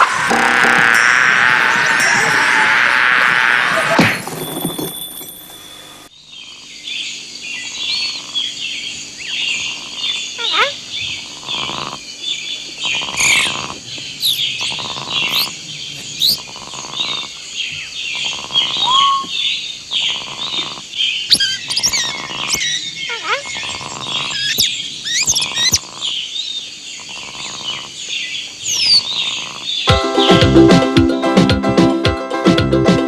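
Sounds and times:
small birds chirping: 6.1s - 30.4s
low repeating bird call: 9.2s - 12.0s, 12.8s - 27.9s, 28.6s - 29.6s.

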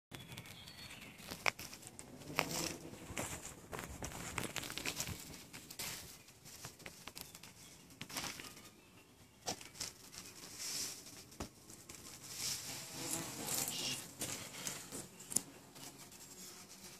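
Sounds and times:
footsteps on dry leaves: 1.0s - 6.6s.

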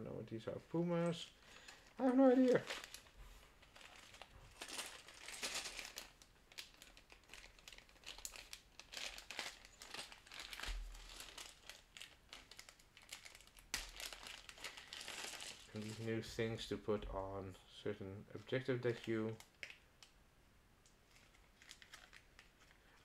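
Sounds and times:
plastic bags crinkling: 1.0s - 16.2s, 21.0s - 23.0s.

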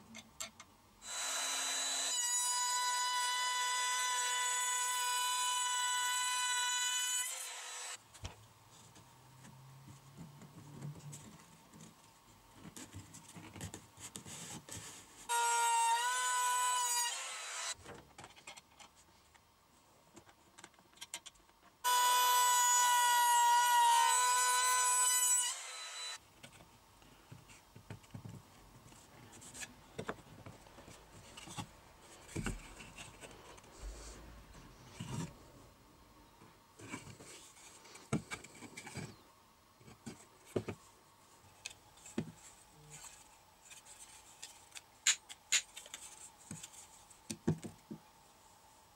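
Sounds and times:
router motor whining: 1.0s - 2.2s.

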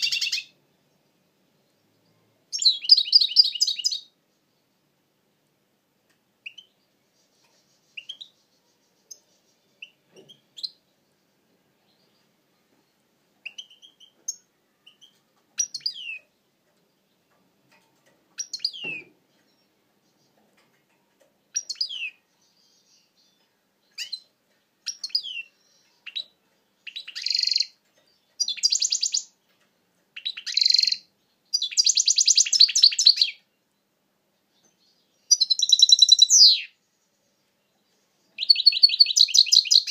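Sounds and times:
goldfinch singing with trills: 0.0s - 0.6s, 2.5s - 4.1s, 21.5s - 29.4s, 30.2s - 33.5s, 34.6s - 36.8s, 38.2s - 39.9s.

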